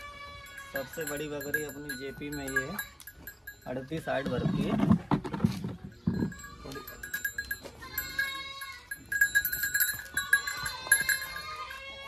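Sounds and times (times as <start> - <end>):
small bell jingling: 0.2 - 4.8, 5.8 - 12.0
goats bleating: 6.3 - 9.2.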